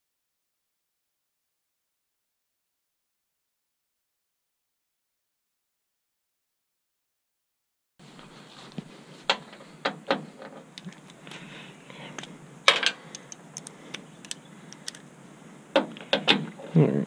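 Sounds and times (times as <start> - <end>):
hand tools and parts clicking: 9.3 - 15.1.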